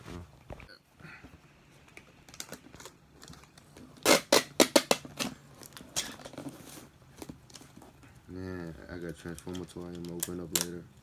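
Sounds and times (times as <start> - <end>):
packing tape ripping off roll: 2.2 - 6.4
soft handling rustles: 5.3 - 10.6.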